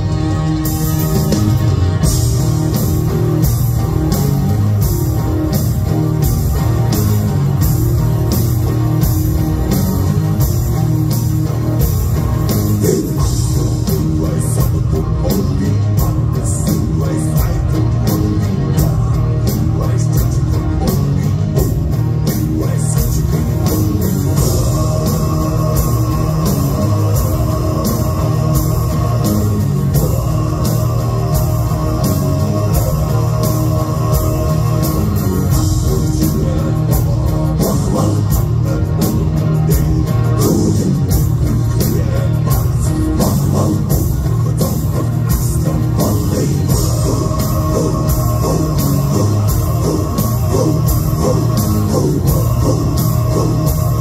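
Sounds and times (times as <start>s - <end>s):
electric guitars and bass: 0.0s - 54.0s
heavy drum beat: 0.0s - 54.0s
deep chanted vocals: 22.6s - 54.0s.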